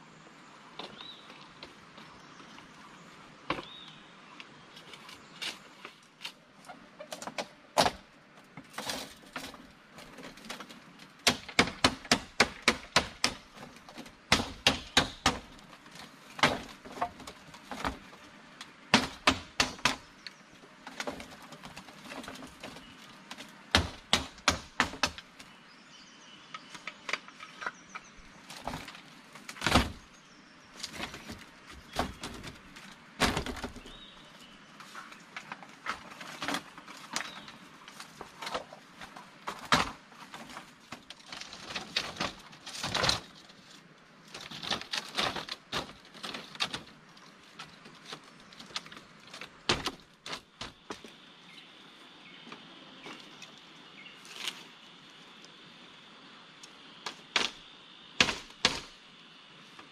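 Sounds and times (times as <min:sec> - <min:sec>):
sharp chopping blows: 0:58.2 - 0:59.0.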